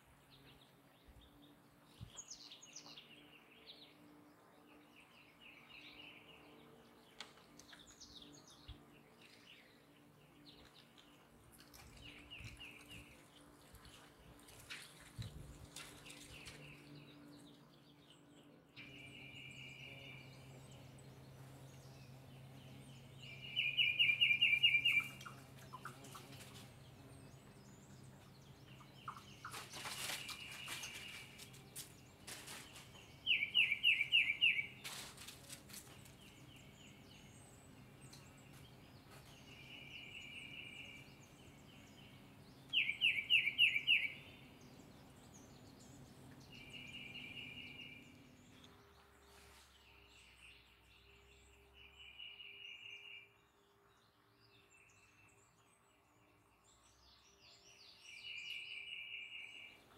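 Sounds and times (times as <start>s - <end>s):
songbird singing: 0.0s - 59.9s.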